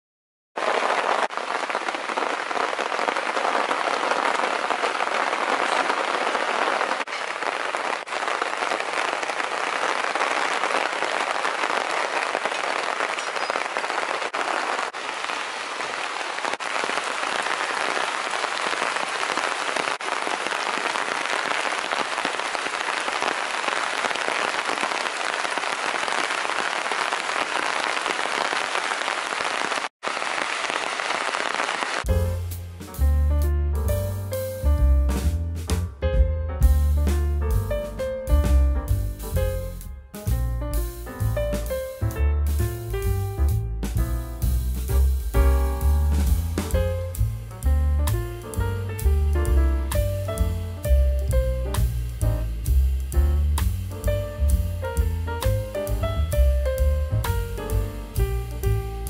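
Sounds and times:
steady rain falling: 0:00.6 - 0:32.4, 0:44.4 - 0:59.0.

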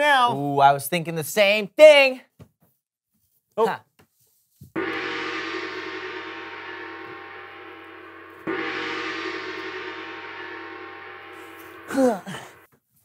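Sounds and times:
bell ringing: 0:04.8 - 0:12.6.

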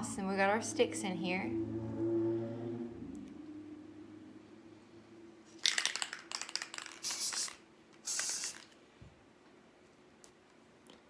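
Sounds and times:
aerosol spray can hissing: 0:05.7 - 0:08.7.

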